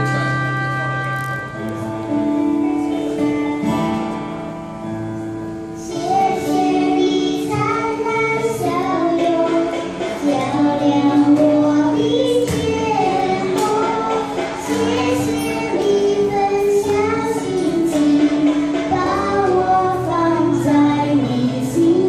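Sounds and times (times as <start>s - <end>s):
instrumental backing: 0.0s - 22.0s
girl and woman singing: 5.8s - 22.0s.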